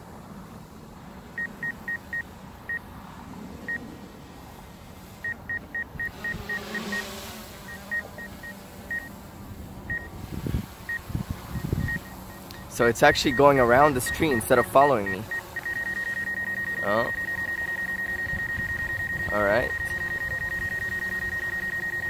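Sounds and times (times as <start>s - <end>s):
high electronic beeps: 7.7s - 9.1s, 11.6s - 22.0s.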